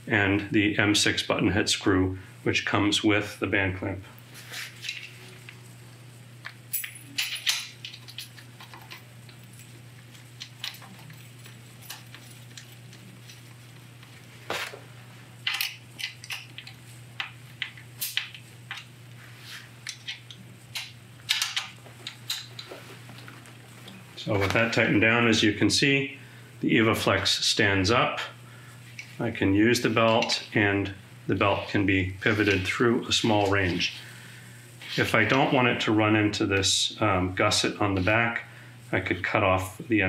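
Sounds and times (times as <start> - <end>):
steady low hum: 0.0 - 40.0.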